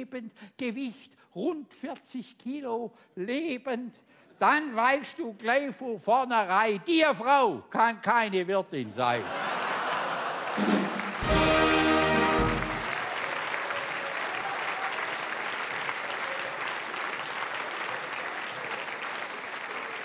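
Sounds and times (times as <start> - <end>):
audience applause: 9.4 - 20.0
band chord: 11.2 - 12.9.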